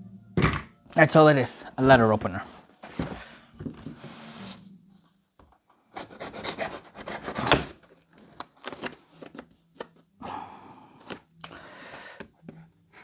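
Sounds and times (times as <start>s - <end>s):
letter opener scraping cardboard: 6.0s - 7.8s.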